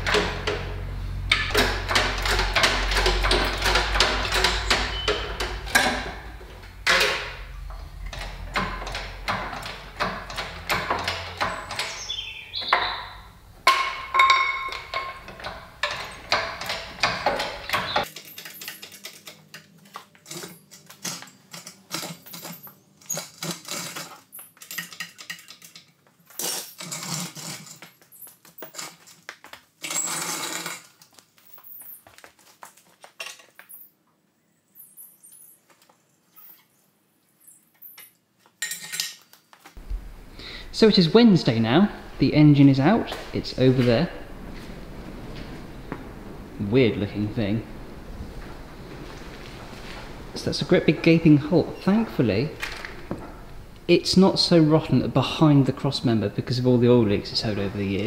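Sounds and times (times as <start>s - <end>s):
parts knocking against metal: 0.0s - 19.4s
metal clinking and rattling: 13.6s - 29.2s, 37.8s - 39.3s
low hum: 39.8s - 53.9s.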